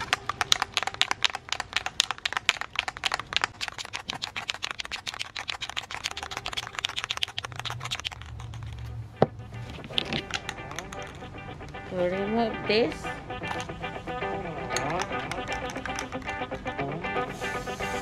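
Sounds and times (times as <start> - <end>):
spray can mixing ball rattling: 0.0 - 8.9, 9.6 - 11.4, 14.7 - 16.6, 17.3 - 18.0.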